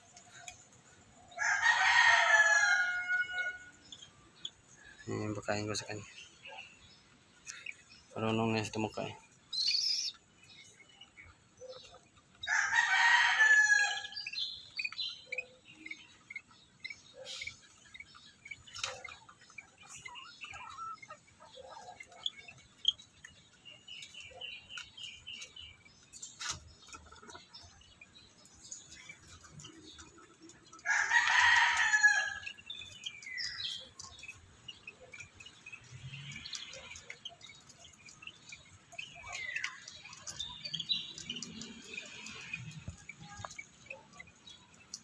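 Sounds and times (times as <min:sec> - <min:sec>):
rooster crowing: 0:01.4 - 0:03.8, 0:12.4 - 0:14.2, 0:30.8 - 0:32.4.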